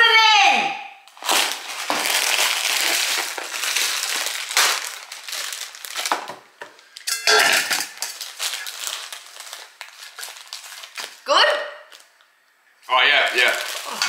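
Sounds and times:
plastic bag crinkling: 1.1 - 11.2, 13.1 - 14.0.

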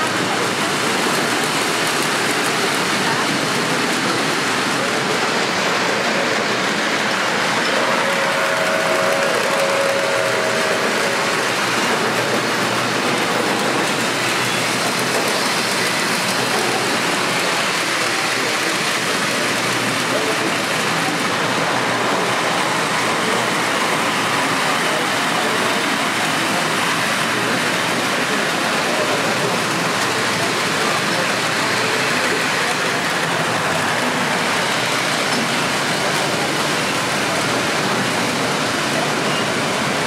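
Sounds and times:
model train hiss and rumble: 0.0 - 40.0
murmur of voices: 0.0 - 40.0.

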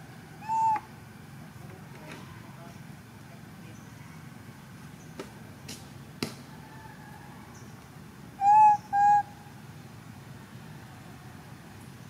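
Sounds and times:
monkey coo calls: 0.4 - 1.0, 8.4 - 9.5.

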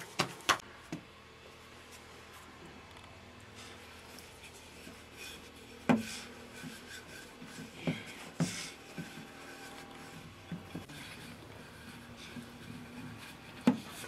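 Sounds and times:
rolling pin rolling dough: 3.6 - 14.0.

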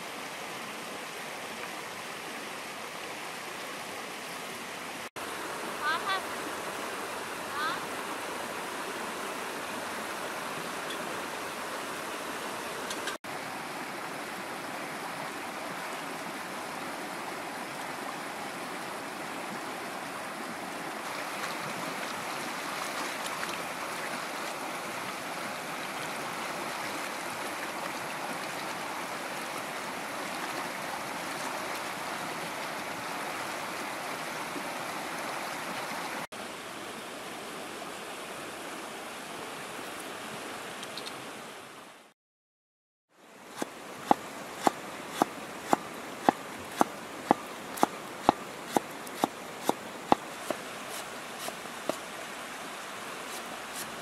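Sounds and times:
river rushing over rapids: 0.0 - 36.7.

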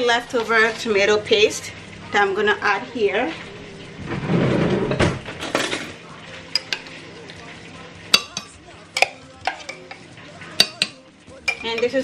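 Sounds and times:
spoon tapping: 6.5 - 7.4, 8.1 - 12.0.

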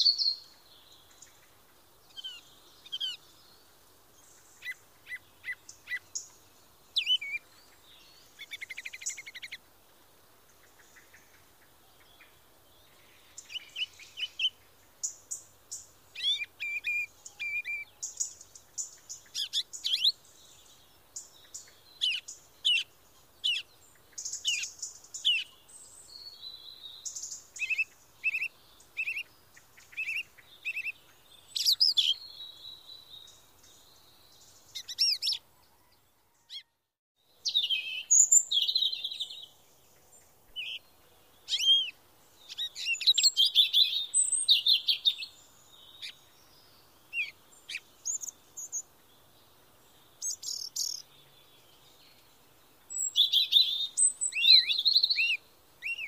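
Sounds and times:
nestlings chirping and begging: 8.3 - 9.6, 13.4 - 20.2, 26.2 - 32.3, 34.6 - 35.4, 40.5 - 40.8, 41.4 - 46.3, 47.1 - 48.9, 50.2 - 51.1.

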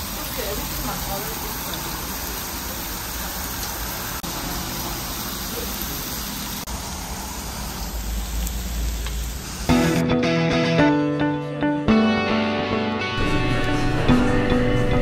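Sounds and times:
meat sizzling on a grill pan: 0.0 - 9.7.

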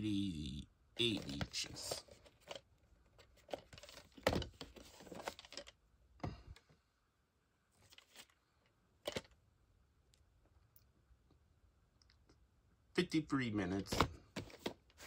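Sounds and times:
tape sleeve rustling: 7.8 - 8.4.

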